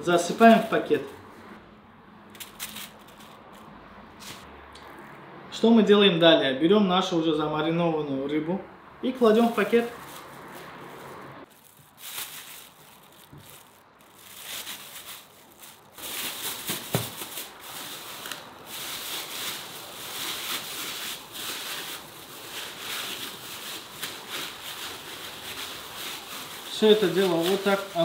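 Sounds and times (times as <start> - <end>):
plastic bag crinkling: 2.4 - 3.7, 9.2 - 28.0.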